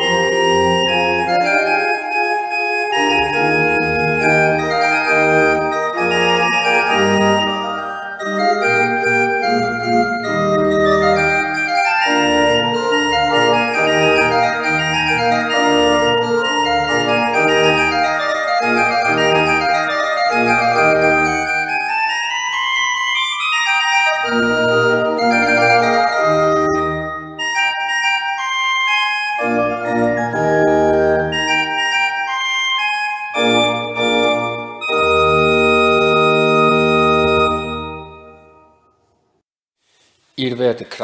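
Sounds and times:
church pipe organ chords: 0.0 - 39.0.

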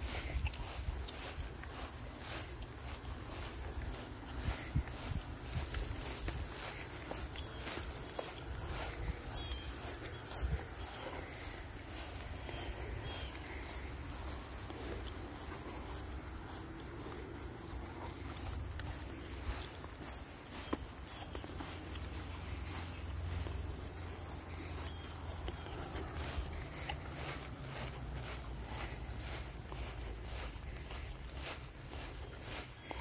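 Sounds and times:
insects chirring: 0.0 - 33.0.

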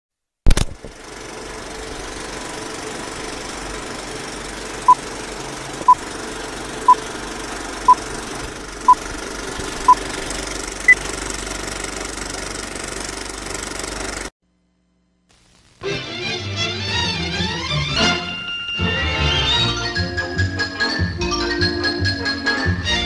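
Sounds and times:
film projector clatter: 0.5 - 14.3.

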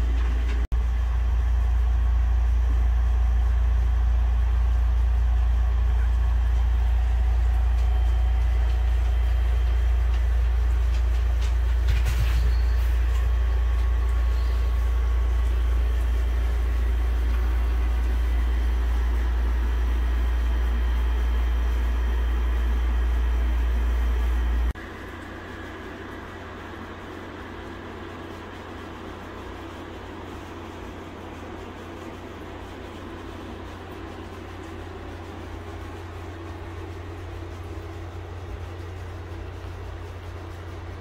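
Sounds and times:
steady low hum: 0.0 - 41.0.

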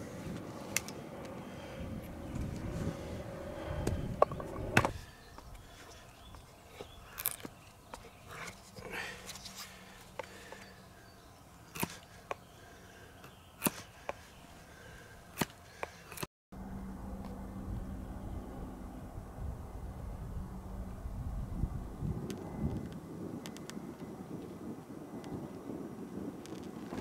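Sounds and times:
knife chopping wood: 11.7 - 12.0, 13.6 - 14.2, 15.4 - 16.2.

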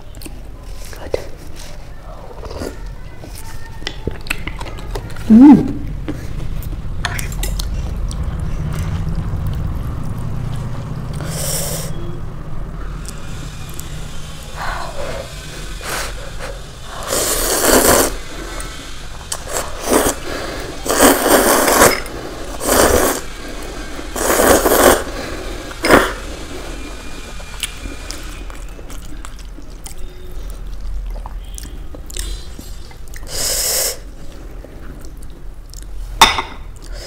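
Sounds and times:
person slurping noodles: 14.6 - 28.3.

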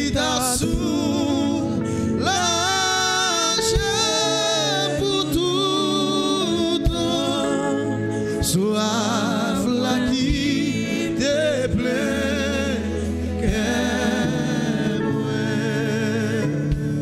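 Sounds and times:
sustained low accompaniment: 5.0 - 17.0.

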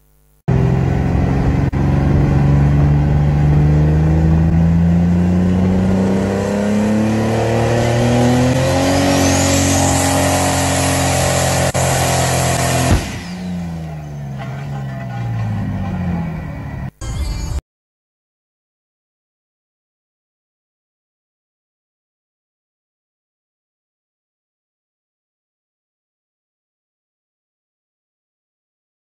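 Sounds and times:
tractor engine revving hard: 0.5 - 17.0
sudden bang: 12.6 - 14.5.

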